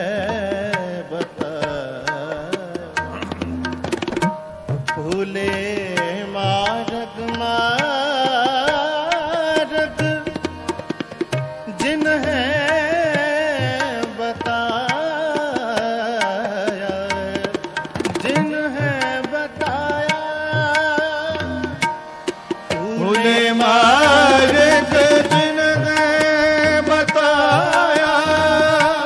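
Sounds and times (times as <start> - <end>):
tabla rhythm: 0.0 - 29.0.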